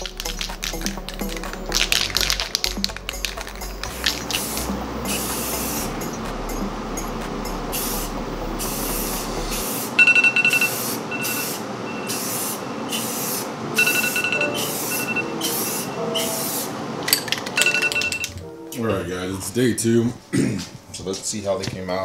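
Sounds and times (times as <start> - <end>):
aerosol can spraying hisses: 3.9 - 5.9, 7.7 - 10.0, 10.8 - 13.5, 14.6 - 16.7.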